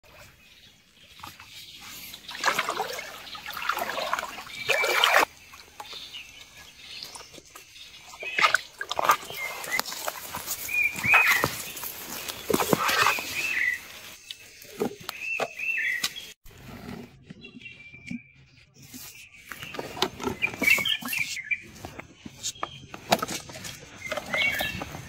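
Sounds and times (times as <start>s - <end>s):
water splashing and sloshing: 0.0s - 15.6s.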